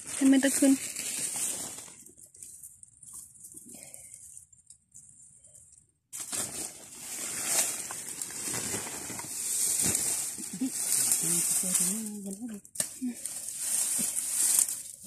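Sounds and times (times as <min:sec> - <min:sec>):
dry leaves rustling and crackling: 0:00.0 - 0:02.2, 0:06.2 - 0:15.0.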